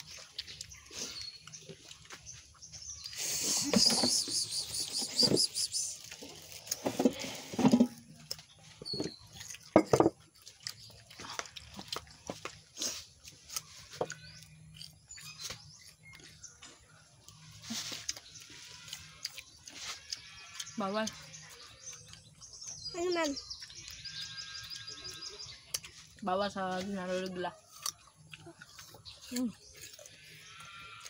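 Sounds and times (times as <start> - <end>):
animal high chirps: 3.2 - 6.1.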